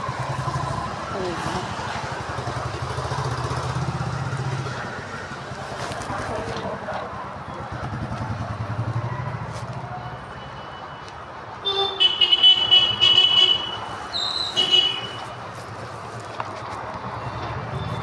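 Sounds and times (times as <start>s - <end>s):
vehicle horns honking: 11.6s - 15.4s.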